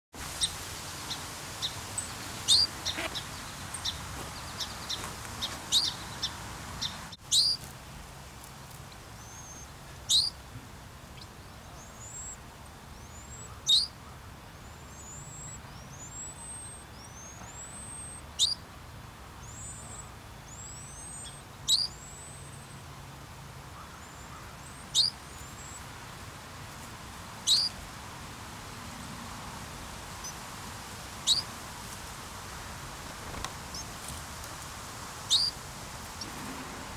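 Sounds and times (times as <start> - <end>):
quick high bird chirps: 2.4 - 4.0, 6.8 - 7.6, 35.3 - 35.5.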